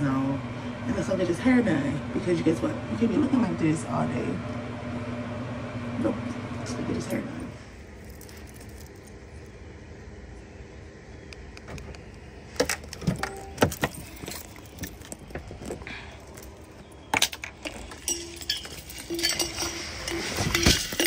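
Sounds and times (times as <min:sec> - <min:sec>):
car keys jingling: 0:07.9 - 0:09.5, 0:12.5 - 0:21.0.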